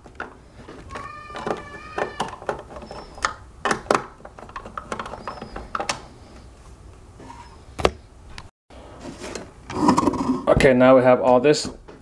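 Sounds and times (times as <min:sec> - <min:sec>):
hard plastic parts clicking: 0:00.0 - 0:06.1
faint squeaks: 0:00.9 - 0:03.3, 0:07.2 - 0:07.8.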